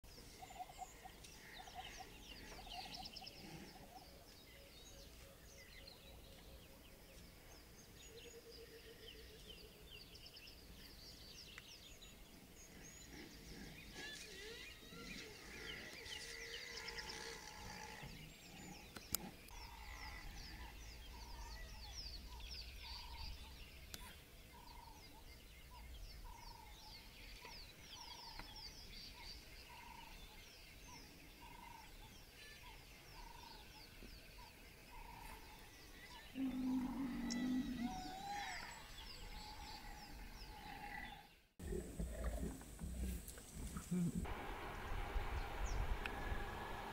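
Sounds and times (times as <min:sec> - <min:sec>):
birds chirping and trilling: 0:00.1 - 0:46.9.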